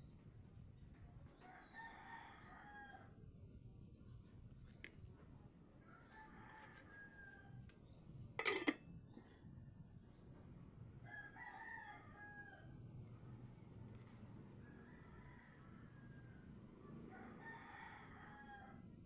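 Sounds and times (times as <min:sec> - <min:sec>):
rooster crowing: 0:01.4 - 0:03.1, 0:05.9 - 0:07.6, 0:11.0 - 0:12.8, 0:14.6 - 0:18.9
metal pot lid clanking: 0:08.4 - 0:08.8.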